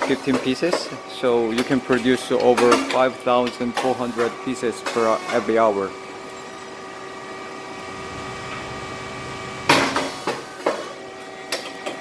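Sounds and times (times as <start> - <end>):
machine humming: 0.0 - 12.0
loud pop and hiss: 9.7 - 10.9.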